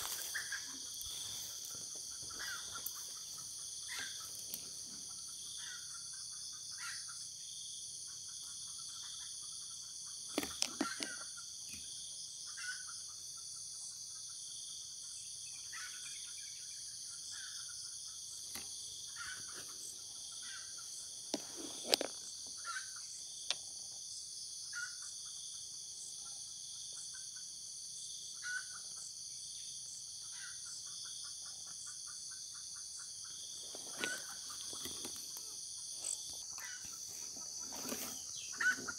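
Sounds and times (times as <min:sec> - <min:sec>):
forest insects chorus: 0:00.0 - 0:38.9.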